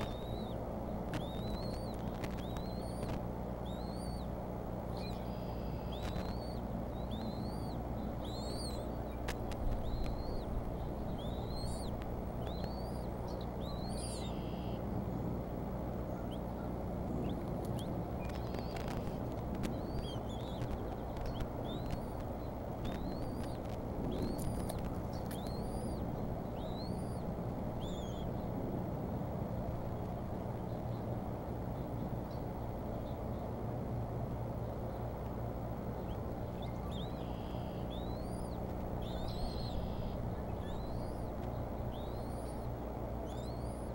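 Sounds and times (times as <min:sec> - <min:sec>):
chicks peeping: 0:00.0 - 0:04.3, 0:04.9 - 0:14.8, 0:17.2 - 0:27.2, 0:36.1 - 0:43.9
steady low hum: 0:00.0 - 0:43.9
sharp clicks: 0:01.1 - 0:03.2, 0:08.3 - 0:10.4, 0:17.3 - 0:25.8.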